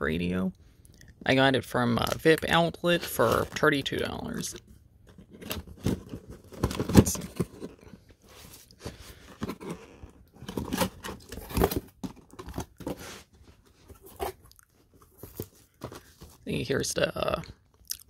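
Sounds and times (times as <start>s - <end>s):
cardboard rustling and scraping: 2.9s - 16.8s.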